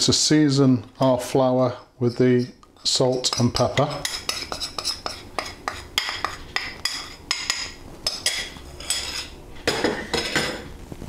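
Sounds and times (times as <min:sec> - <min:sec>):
metal spoon clinking on dishes: 0:02.0 - 0:10.6.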